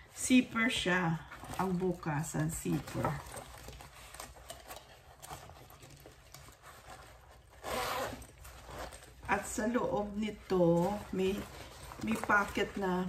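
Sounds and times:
fabric rustling: 0:00.0 - 0:13.0
bag zipper zipping: 0:07.5 - 0:09.1.

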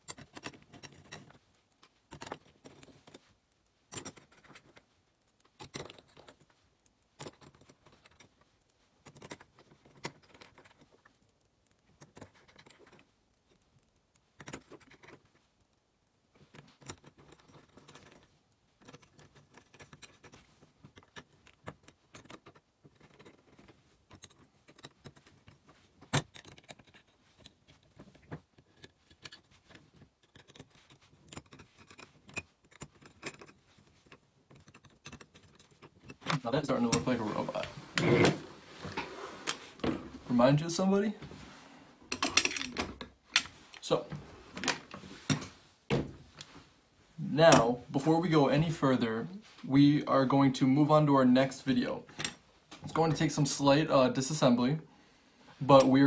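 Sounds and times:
hex key turning screws: 0:00.0 - 0:15.8, 0:16.5 - 0:36.4.

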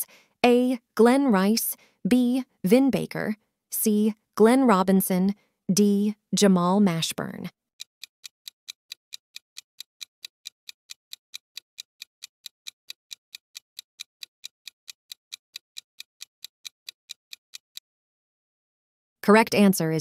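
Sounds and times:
clock-like timer ticking: 0:07.8 - 0:17.8.

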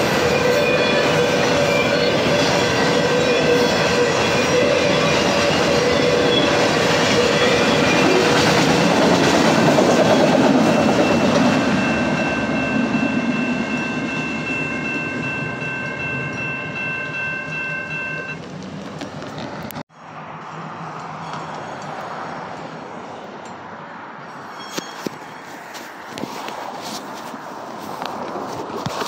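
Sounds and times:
wheels squealing: 0:00.0 - 0:16.6, 0:24.3 - 0:29.0
train wheels rumbling on rails: 0:00.0 - 0:19.8
steady high tones: 0:09.9 - 0:18.4.

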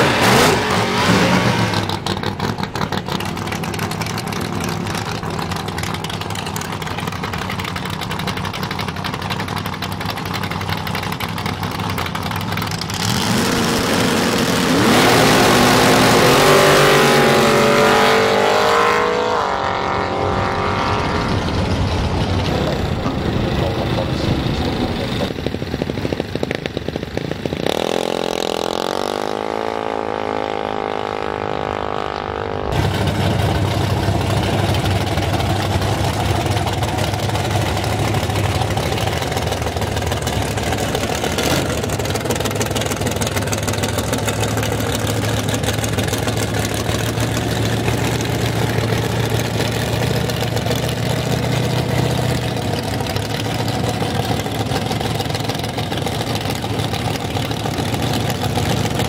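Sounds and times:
loud engine running close by: 0:00.0 - 0:59.0.

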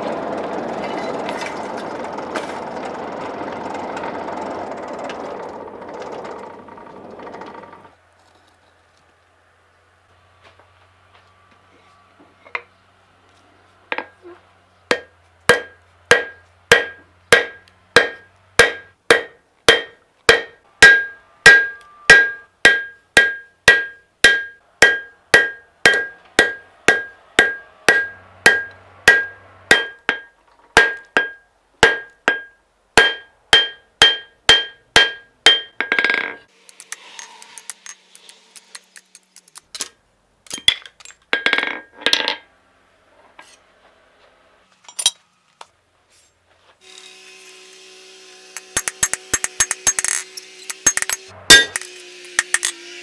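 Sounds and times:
hammer ringing on anvil: 0:14.9 - 0:36.0, 0:48.6 - 0:52.7
faint scraping: 0:36.7 - 0:38.8.

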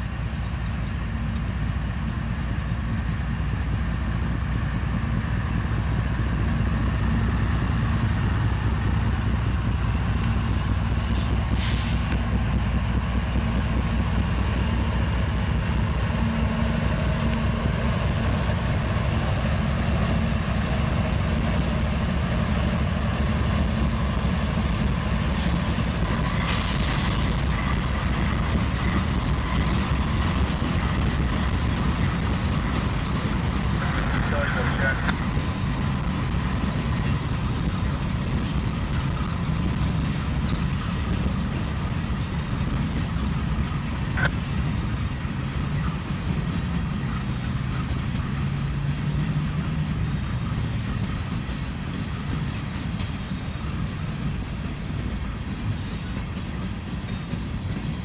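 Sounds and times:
locomotive engine drone: 0:00.0 - 0:58.0
wheel and rail noise: 0:00.0 - 0:58.0
short air hisses: 0:11.6 - 0:12.1.

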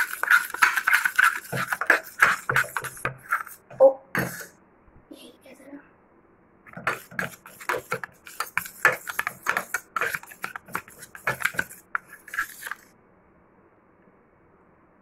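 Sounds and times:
spoon scraping steel bowl: 0:00.0 - 0:04.5, 0:06.7 - 0:12.9.

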